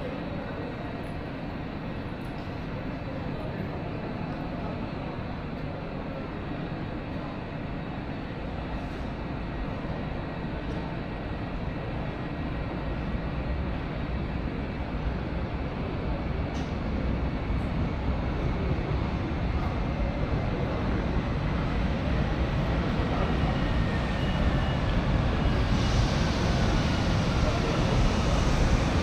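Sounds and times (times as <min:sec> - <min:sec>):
train rumbling: 0:08.1 - 0:29.0.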